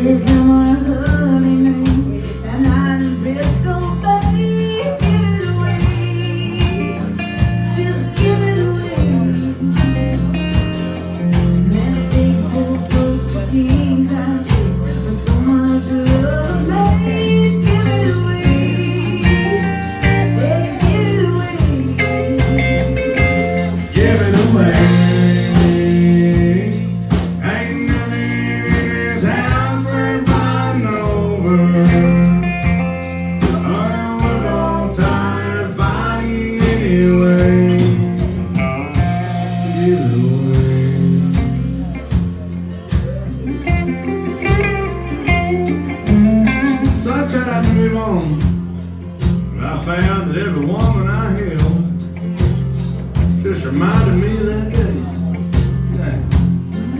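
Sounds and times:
woman singing a ballad: 0.0 - 10.4, 11.6 - 26.8
acoustic and electric guitars: 0.0 - 56.9
steady drum beat: 0.0 - 56.9.

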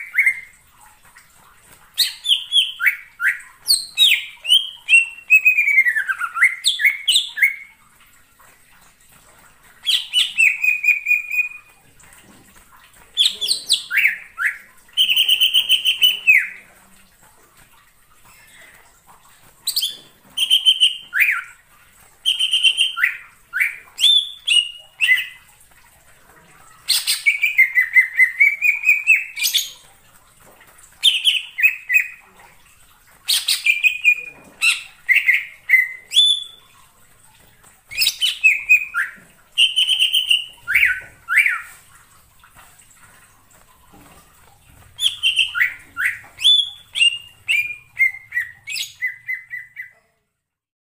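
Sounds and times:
bird singing whistled phrases: 9.9 - 11.6, 19.7 - 21.6, 22.2 - 25.4, 37.9 - 41.7, 45.0 - 50.0.

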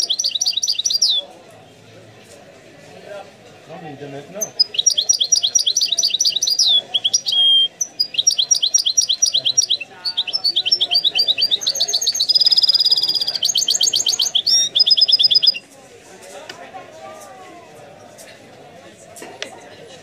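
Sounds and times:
bird twittering: 0.0 - 1.2, 4.4 - 15.6
buzzy bird trill: 0.0 - 1.2, 4.4 - 15.6.

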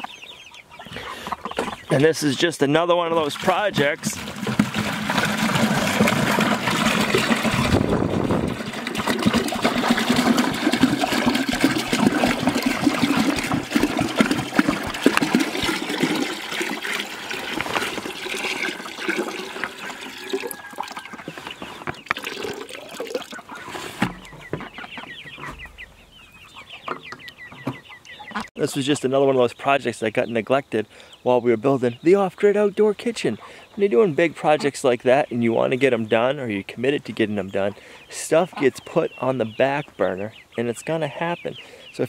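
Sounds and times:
chickens clucking: 0.0 - 42.0
water pouring into plastic bucket: 3.2 - 23.6.

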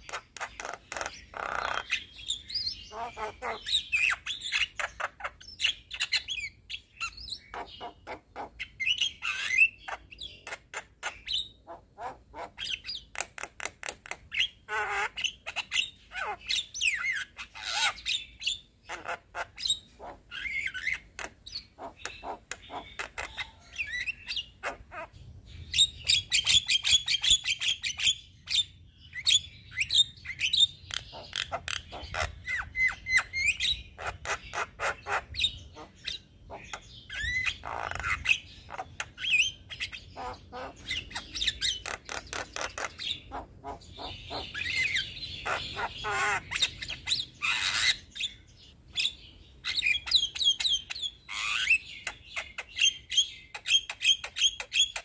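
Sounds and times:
bird harsh squawks: 0.0 - 13.1, 14.3 - 25.2, 30.2 - 48.4.

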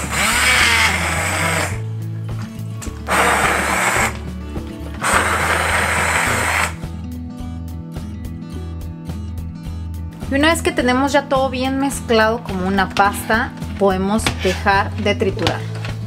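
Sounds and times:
immersion blender grinding: 0.0 - 1.8, 3.0 - 4.2, 5.0 - 6.8.

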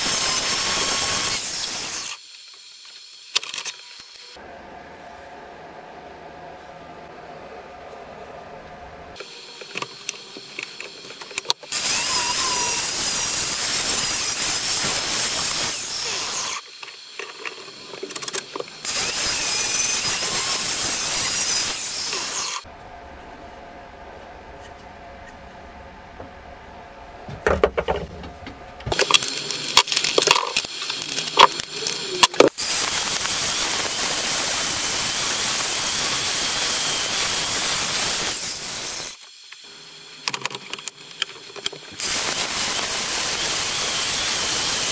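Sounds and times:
angle grinder grinding steel: 0.0 - 4.4, 9.2 - 22.7, 28.9 - 40.2, 40.8 - 44.9.

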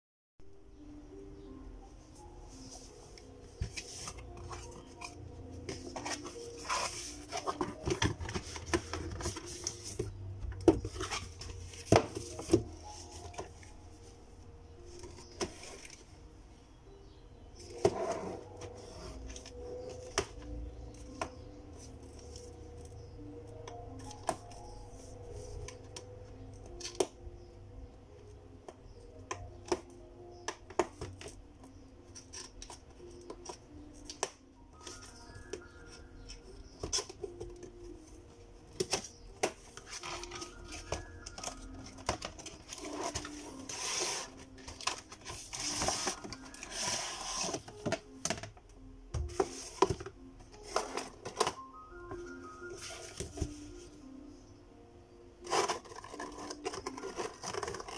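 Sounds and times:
soft background music: 0.4 - 57.9
cardboard scraping and rustling: 5.7 - 10.1.

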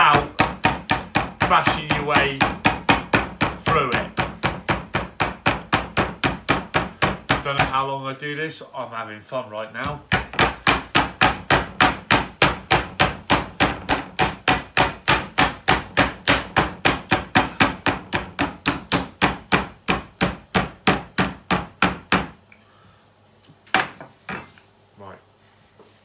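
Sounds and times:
meat hammer pounding on board: 0.0 - 7.8, 9.8 - 22.4.

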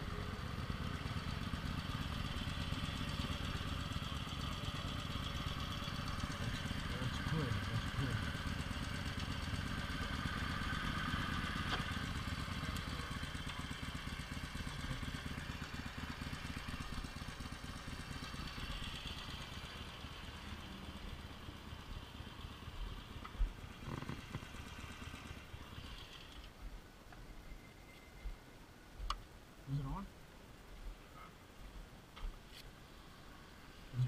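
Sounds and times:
motorcycle engine idling: 0.0 - 26.6.

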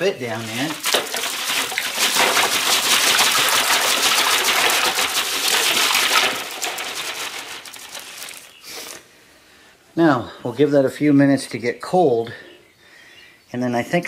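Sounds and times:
ice cubes clattering and splashing: 0.2 - 8.6
plastic bag crinkling: 0.2 - 8.9.

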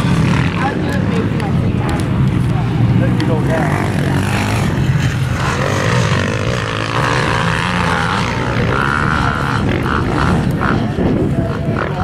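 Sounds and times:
dirt bike engines revving: 0.0 - 12.0.

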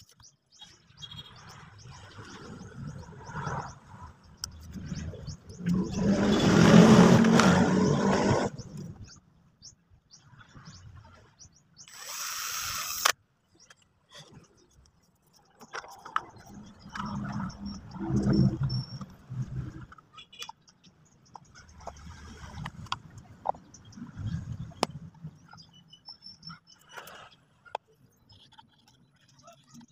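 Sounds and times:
faint bird chirps: 0.0 - 6.4
cordless drill boring into plastic: 11.9 - 13.2.

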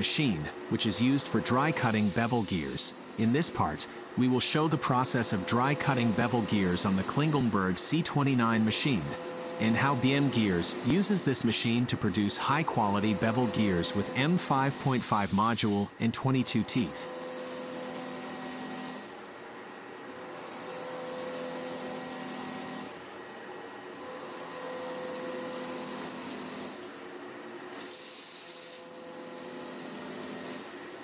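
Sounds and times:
machine hum: 0.0 - 18.3
hiss of gear cutting: 0.8 - 3.9, 8.8 - 15.9.

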